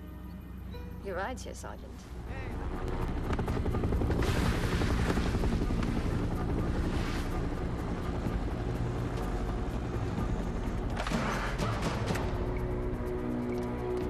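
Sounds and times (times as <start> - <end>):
helicopter rotor chopping: 2.1 - 14.0.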